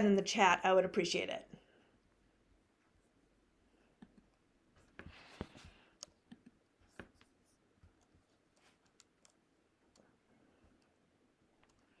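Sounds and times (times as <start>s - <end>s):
small clicks at a computer: 5.4s - 10.1s, 11.6s - 12.0s.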